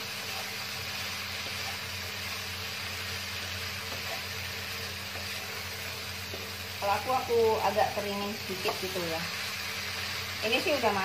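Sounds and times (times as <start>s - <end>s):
vegetables sizzling in a frying pan: 0.0s - 11.0s
wooden spatula stirring: 3.8s - 6.6s.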